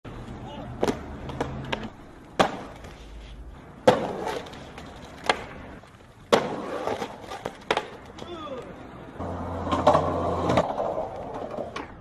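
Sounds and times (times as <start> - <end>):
skateboard slapping on asphalt: 0.1 - 12.0
skateboard wheels rolling on street: 0.1 - 12.0
skateboard clacks: 0.8 - 3.0, 3.8 - 5.6, 6.3 - 8.7, 9.4 - 12.0.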